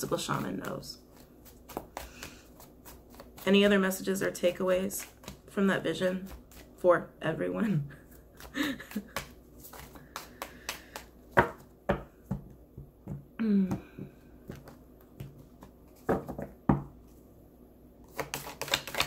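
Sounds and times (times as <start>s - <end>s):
woman humming: 13.4s - 14.1s.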